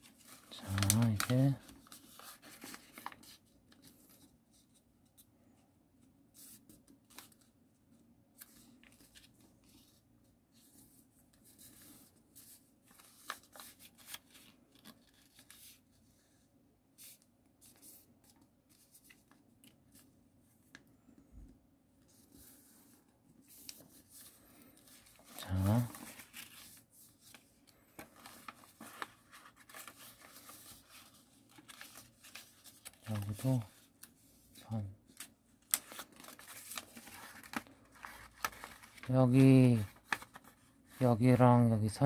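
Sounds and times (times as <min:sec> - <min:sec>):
paper rustling and creasing: 0:00.0 - 0:05.2, 0:08.3 - 0:16.4, 0:22.0 - 0:41.4
crisp paper ticks: 0:00.6 - 0:01.5.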